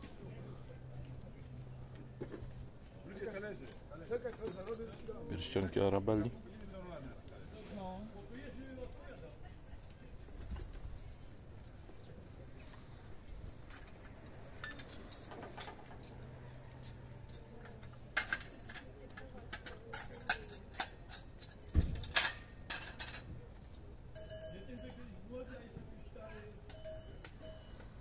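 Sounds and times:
metal and glass trinkets clinking: 14.3s - 15.7s, 24.1s - 25.4s, 26.5s - 28.0s.

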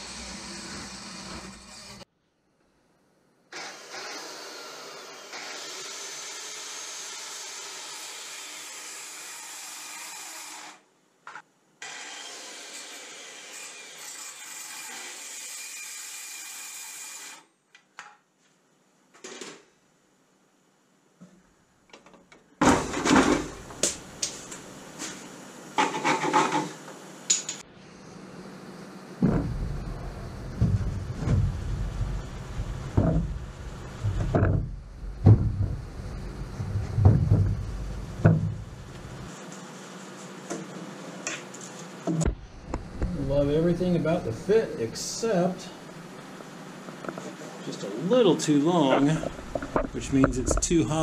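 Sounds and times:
circular saw cutting wood: 0.0s - 2.1s, 3.6s - 10.8s, 11.8s - 17.5s
loud wooden knocks and clatter: 22.6s - 23.6s, 29.2s - 38.8s.

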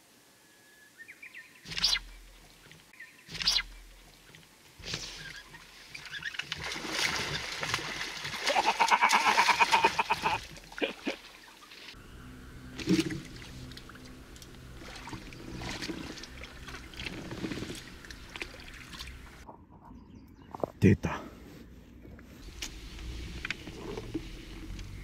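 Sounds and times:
fish splashing at the surface: 6.5s - 12.0s.

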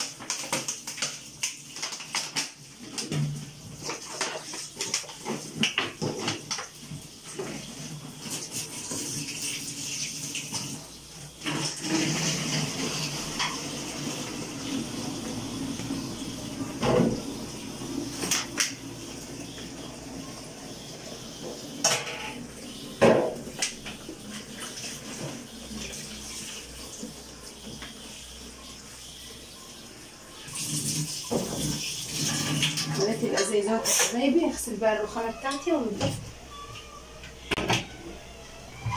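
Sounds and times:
bottles knocking against sink: 23.0s - 23.4s.

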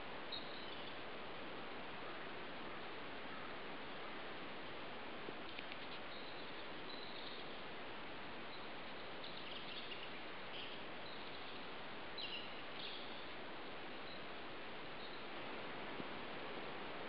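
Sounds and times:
shallow stream rushing: 11.6s - 17.0s.

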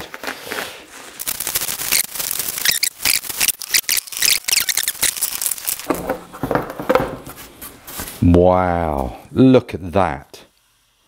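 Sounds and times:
bubble wrap crinkling: 0.0s - 6.2s.

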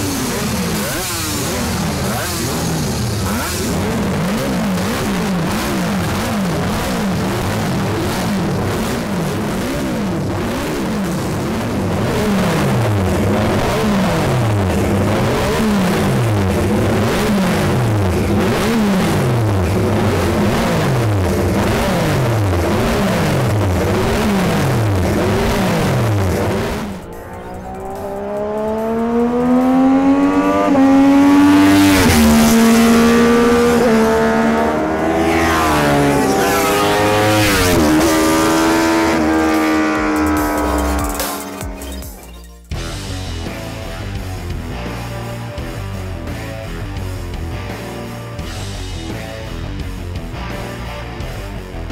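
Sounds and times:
motorcycle engines revving: 0.0s - 51.9s
single engine revving hard: 28.0s - 42.1s.

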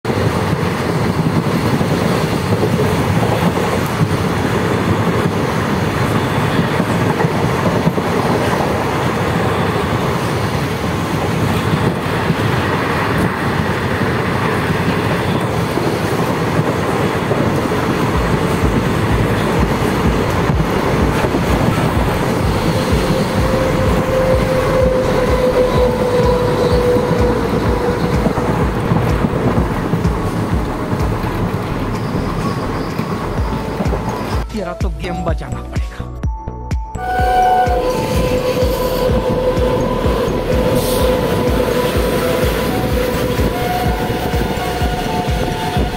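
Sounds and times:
passing freight train: 0.0s - 45.9s
train wheels clattering on rails: 0.1s - 34.5s, 37.2s - 45.9s
steady whine: 18.2s - 31.4s.

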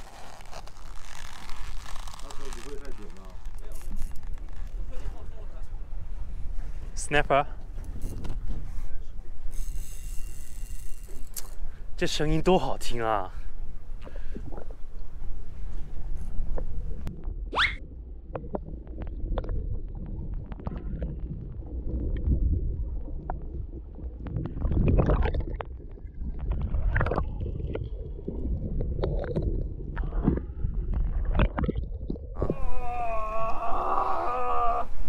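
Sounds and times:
muffled underwater water gurgling: 17.0s - 33.6s
person exclaiming: 32.4s - 34.9s.

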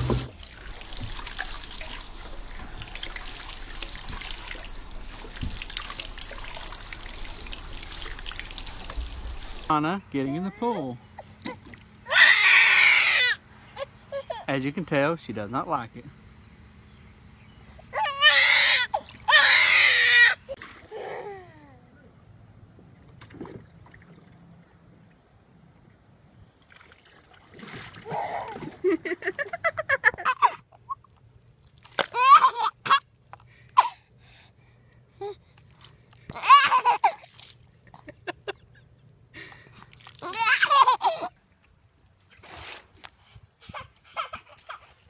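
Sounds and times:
small water splashes: 0.0s - 10.0s, 11.2s - 12.8s, 18.3s - 21.1s, 22.9s - 25.3s, 26.5s - 29.5s, 30.4s - 33.8s, 35.4s - 43.1s
shower sprayer water trickling: 0.0s - 13.2s
baby crying: 10.3s - 14.5s, 17.9s - 21.8s.

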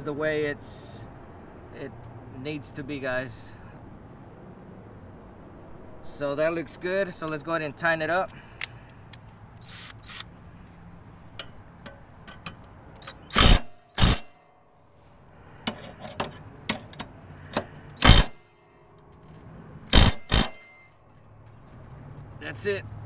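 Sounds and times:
impact wrench hammering: 11.4s - 14.4s, 15.6s - 18.4s, 19.9s - 20.9s.

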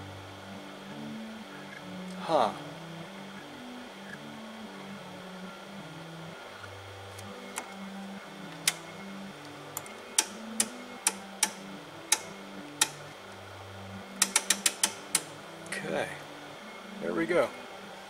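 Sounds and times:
selector knobs clicking: 8.5s - 8.8s, 9.7s - 13.0s, 14.2s - 15.3s.

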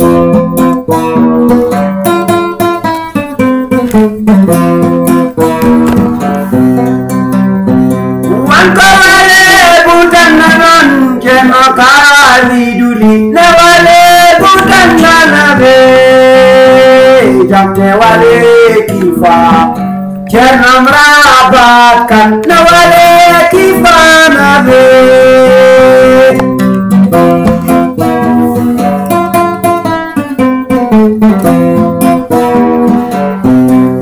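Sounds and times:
acoustic guitar picking: 0.0s - 34.0s
man singing: 8.2s - 28.9s.

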